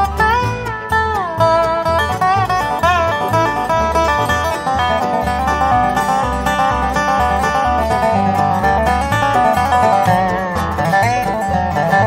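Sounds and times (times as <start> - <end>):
plucked strings melody: 0.0 - 12.0
rhythmic bass line: 0.0 - 12.0.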